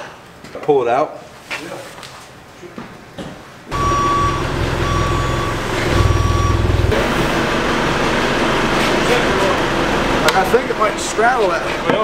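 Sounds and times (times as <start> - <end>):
vehicle reverse alarm beeps: 3.7 - 7.0
engine rumbling: 3.7 - 11.8.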